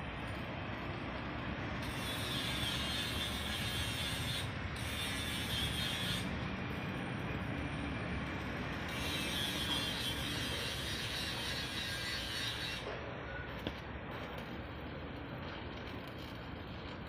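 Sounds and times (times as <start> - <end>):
electric arc welding crackling: 8.6 - 12.9, 14.1 - 17.0
low mechanical rumble: 12.8 - 17.0.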